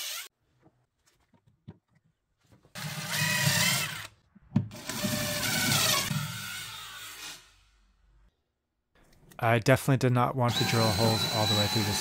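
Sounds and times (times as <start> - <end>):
cordless driver drilling into wood: 0.0 - 0.3, 2.8 - 4.1, 4.7 - 7.5, 10.5 - 12.0.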